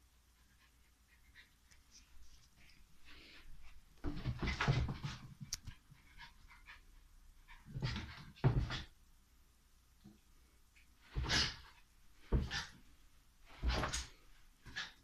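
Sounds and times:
puppy scuffling with a balloon: 0:13.5 - 0:15.0.

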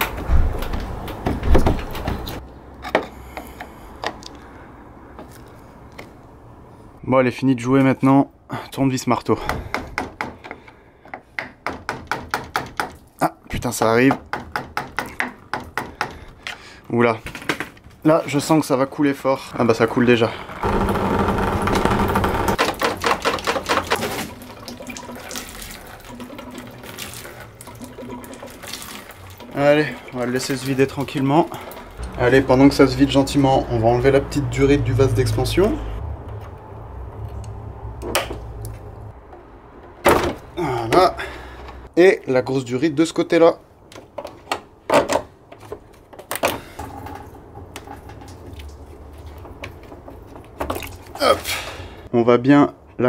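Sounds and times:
hands and tools clicking and knocking: 0:00.0 - 0:04.4, 0:09.4 - 0:16.6, 0:20.6 - 0:24.3, 0:43.9 - 0:51.2
coolant gushing and splashing: 0:22.7 - 0:32.0, 0:47.2 - 0:51.4.

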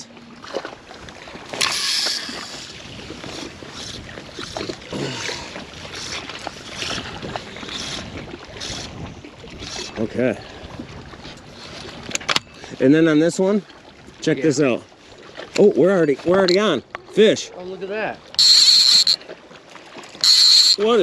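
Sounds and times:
lapping water: 0:00.0 - 0:21.0
wind: 0:00.0 - 0:21.0.

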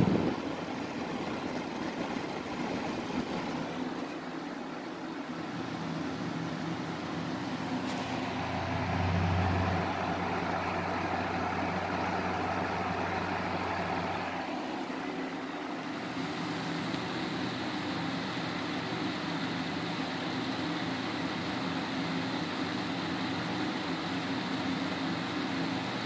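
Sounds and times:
box fan whooshing: 0:00.0 - 0:20.6
fan low hum: 0:00.0 - 0:26.0.

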